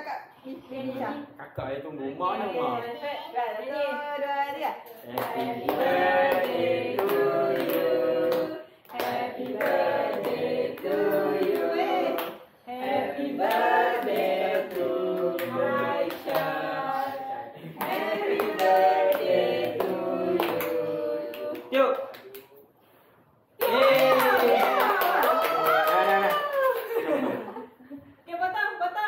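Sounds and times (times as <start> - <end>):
group singing a birthday song: 2.1 - 22.0
people clapping along: 5.1 - 12.4, 13.2 - 16.9, 17.8 - 22.6, 23.6 - 27.4.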